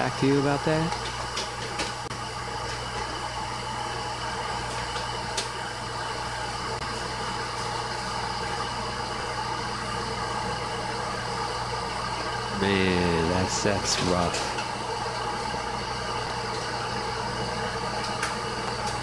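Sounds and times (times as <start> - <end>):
kettle heating water hiss: 0.0 - 19.0.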